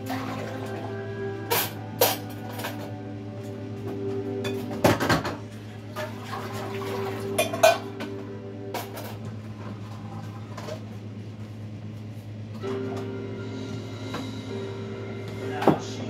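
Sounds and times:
dishes clattering in a sink: 1.4s - 2.9s, 4.4s - 9.3s.

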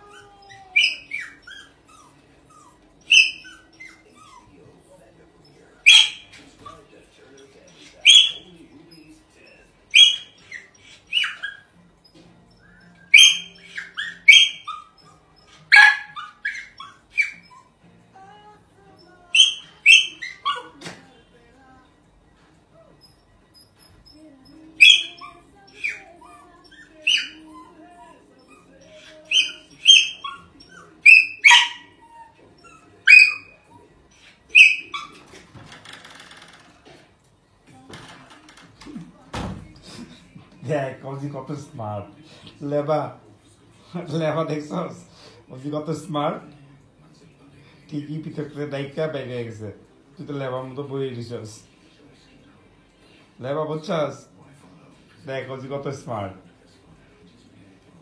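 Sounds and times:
small dog barking and yipping: 0.0s - 4.6s, 5.8s - 6.9s, 7.7s - 8.6s, 9.9s - 11.8s, 13.1s - 17.8s, 19.3s - 21.0s, 22.9s - 35.4s.

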